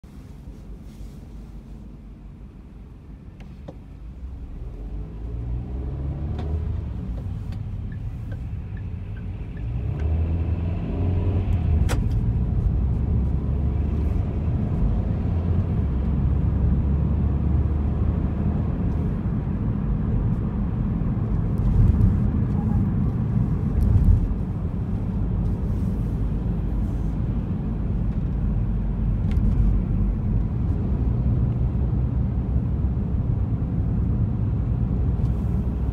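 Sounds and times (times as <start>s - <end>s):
road noise: 0.0s - 35.9s
car engine accelerating: 4.2s - 35.9s.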